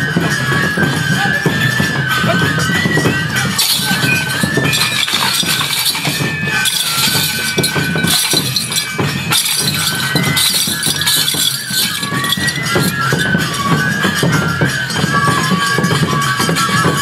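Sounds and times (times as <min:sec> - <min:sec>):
bamboo flute melody: 0:00.0 - 0:04.8, 0:12.6 - 0:17.0
metallic jingling and clinking: 0:02.2 - 0:14.3.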